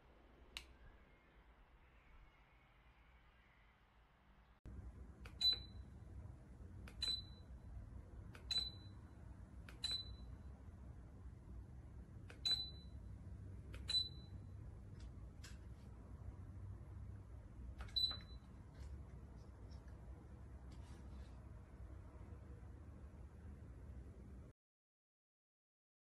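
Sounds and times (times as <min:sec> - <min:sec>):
steady low hum: 0:04.7 - 0:24.5
ceiling fan beeping: 0:05.2 - 0:06.0, 0:06.8 - 0:10.6, 0:12.3 - 0:14.7, 0:17.8 - 0:18.8.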